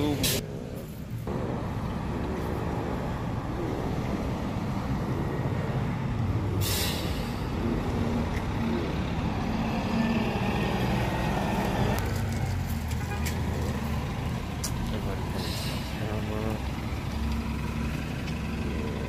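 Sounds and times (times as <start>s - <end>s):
bus engine rumble: 0.0s - 19.0s
air brake hiss: 6.6s - 7.4s.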